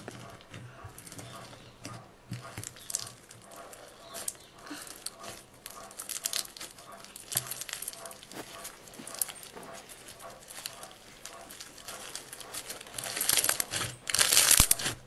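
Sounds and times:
crunchy slime crackling and popping: 4.1s - 15.0s.

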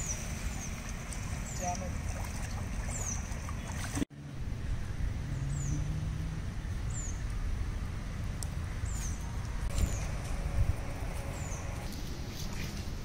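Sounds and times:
steady low rumble: 4.2s - 13.0s.

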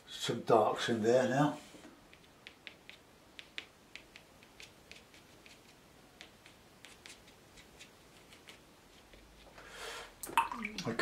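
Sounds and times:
brush tapping on paper: 2.0s - 9.5s.

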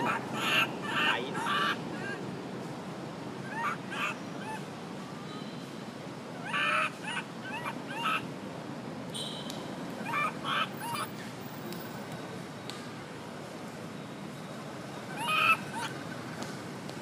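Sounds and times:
macaque squeaky calls: 0.0s - 2.2s, 6.4s - 8.2s, 9.2s - 11.1s, 15.1s - 16.0s.

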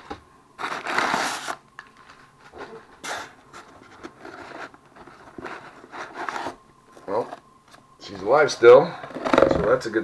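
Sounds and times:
packing paper rustling: 0.6s - 7.4s.

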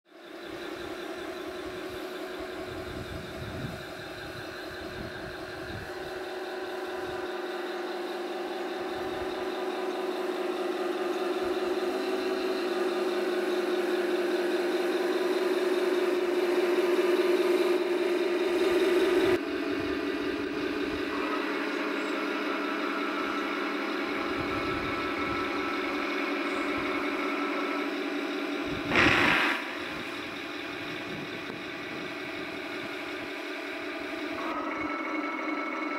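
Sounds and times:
simulated tank engine: 0.0s - 35.9s
model tank drive noise: 0.3s - 34.6s
short loud burst: 28.8s - 31.0s.

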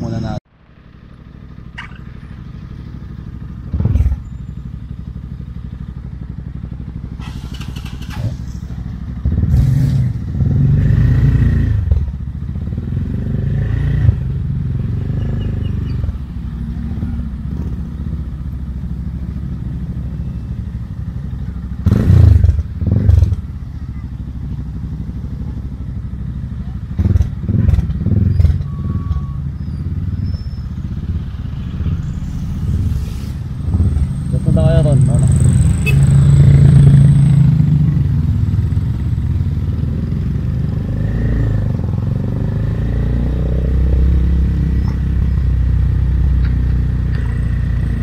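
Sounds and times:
motorcycle engine idling: 0.0s - 9.5s, 14.2s - 32.7s, 37.4s - 40.8s.

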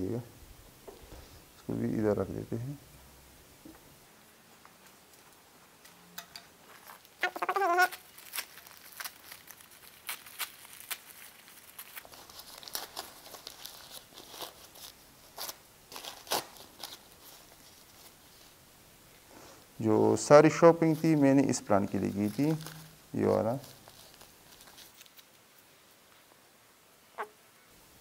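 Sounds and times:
paper rustling and tearing: 6.7s - 18.6s, 20.8s - 25.7s
wavering pitched call: 7.2s - 8.0s, 27.2s - 27.4s.

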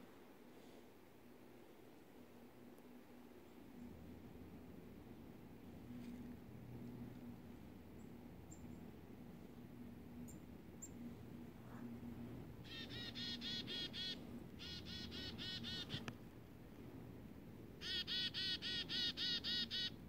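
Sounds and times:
chickadee calling: 12.6s - 16.1s, 17.8s - 20.0s.

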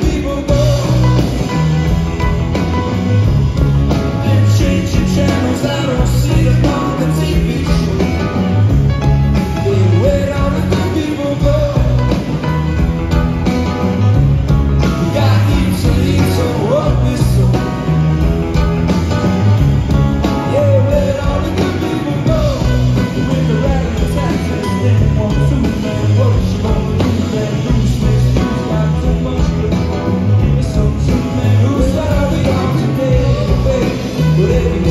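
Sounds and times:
live band playing: 0.0s - 34.9s
person singing: 4.0s - 8.4s.

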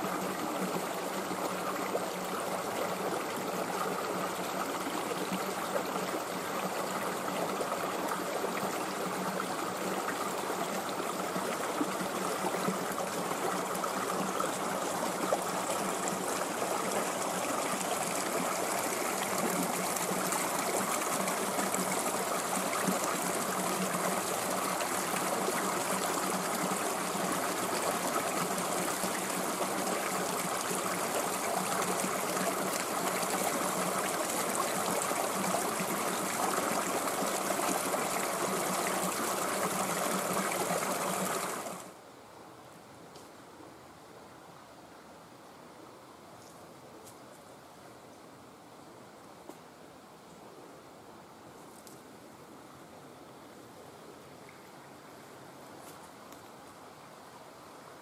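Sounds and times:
water trickling over rocks: 0.0s - 41.9s.

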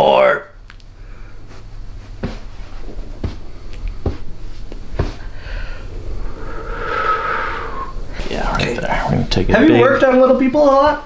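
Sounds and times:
low steady hum: 0.0s - 11.0s
faint breath or moan: 5.2s - 8.4s.

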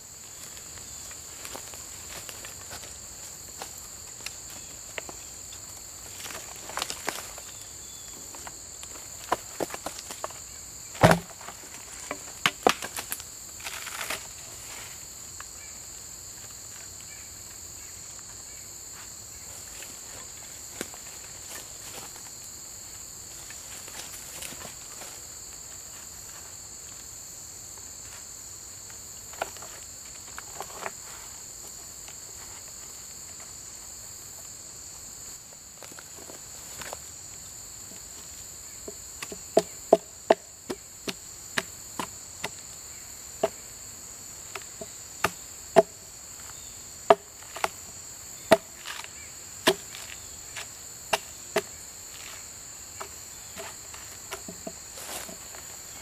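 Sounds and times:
insects trilling: 0.0s - 56.0s
hatchet striking log bark: 11.0s - 11.3s, 39.2s - 42.6s, 44.5s - 46.0s, 47.1s - 47.8s, 48.5s - 49.0s, 49.6s - 50.0s, 51.1s - 51.8s.

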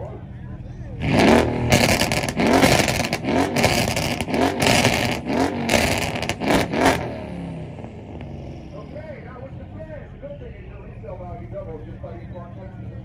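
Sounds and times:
exhaust pops: 1.0s - 7.2s
car engine revving: 1.0s - 12.0s.

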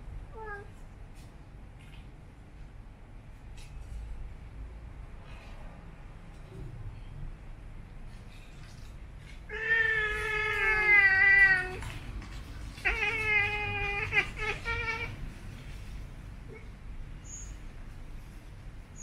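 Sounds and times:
cat yowling: 9.5s - 11.9s, 12.7s - 15.2s.

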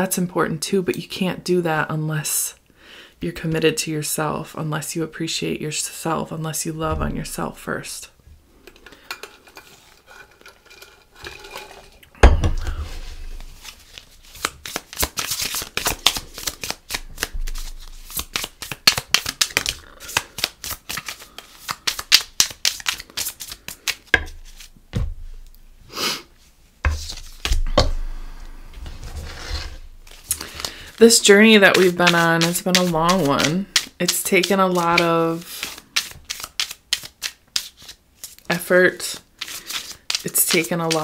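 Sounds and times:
cards being shuffled by hand: 12.8s - 25.0s, 26.9s - 27.9s, 28.8s - 41.0s.

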